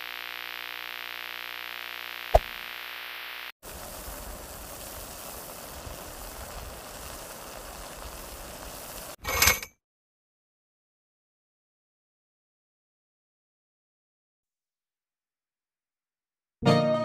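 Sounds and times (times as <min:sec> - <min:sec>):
steady hiss: 0:03.4 - 0:09.2
synthesizer chord: 0:16.6 - 0:17.0.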